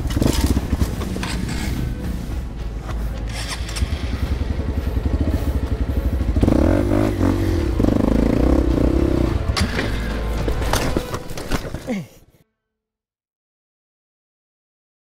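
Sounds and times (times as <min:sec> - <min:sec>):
dirt bike engine revving: 0:00.0 - 0:09.8.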